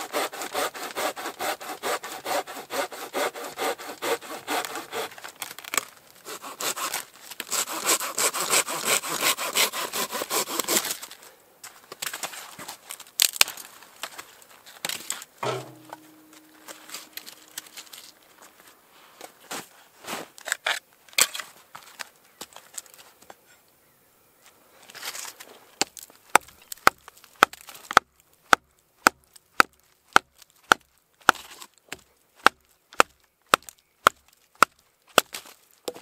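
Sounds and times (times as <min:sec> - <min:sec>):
hand saw cutting branches: 0:00.0 - 0:11.2, 0:15.0 - 0:18.1
sharp wood crack: 0:00.1 - 0:07.6, 0:12.9 - 0:14.2, 0:14.8 - 0:18.3, 0:25.8 - 0:36.0
wood knocking: 0:15.4 - 0:17.7.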